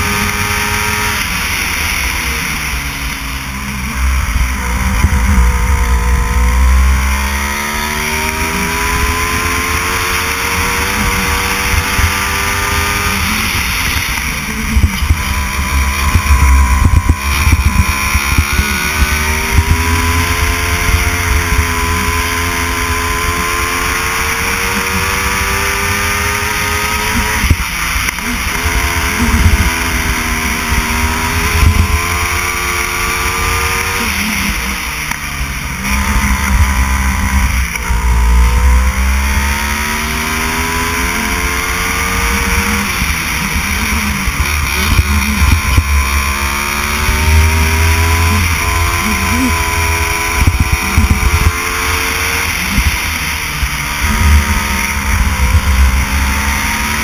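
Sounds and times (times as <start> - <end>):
go-kart engine revving: 0.0 - 57.0
heavy low rumble: 1.6 - 23.4.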